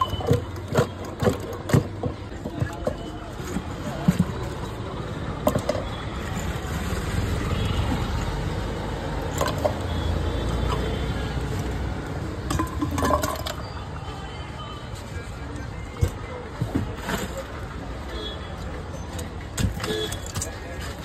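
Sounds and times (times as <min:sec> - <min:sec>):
street traffic rumble: 0:00.0 - 0:21.0
steel utensils clinking: 0:12.4 - 0:13.8.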